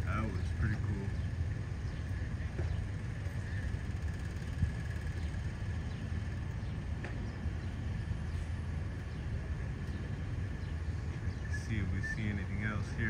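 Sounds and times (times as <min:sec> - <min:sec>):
distant street traffic: 0:00.0 - 0:13.0.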